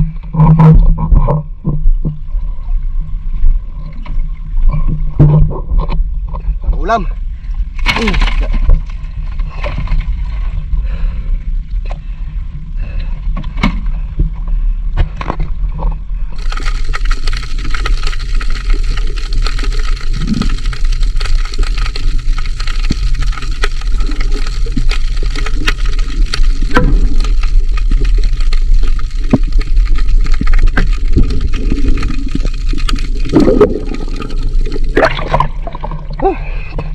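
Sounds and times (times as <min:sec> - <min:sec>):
sharp splashes: 0:33.1 - 0:36.4.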